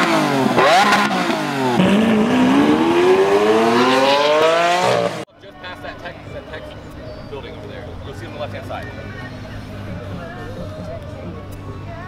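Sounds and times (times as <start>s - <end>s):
car engine revving: 0.0s - 5.3s.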